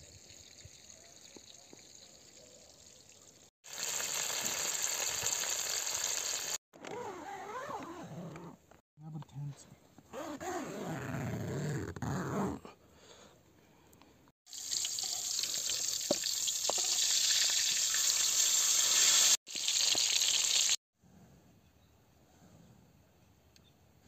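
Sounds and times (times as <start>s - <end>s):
paste sizzling in a wok: 3.6s - 6.6s, 14.5s - 20.8s.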